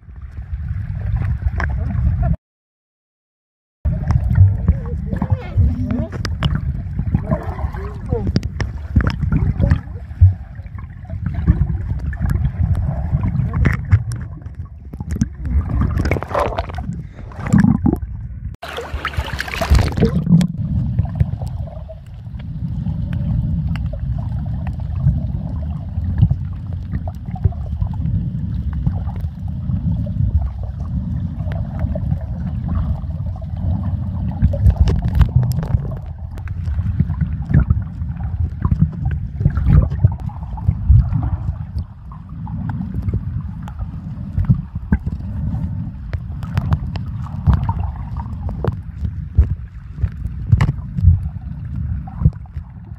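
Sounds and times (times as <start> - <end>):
muffled underwater rumble and gurgling: 0.0 - 2.4, 3.9 - 52.9
water splash: 3.9 - 22.1.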